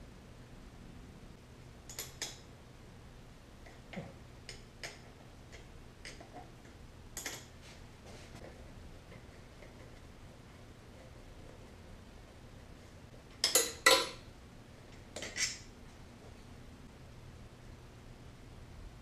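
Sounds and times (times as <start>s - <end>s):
tools clicking and tapping: 1.9s - 2.5s, 3.6s - 7.5s, 13.3s - 14.2s.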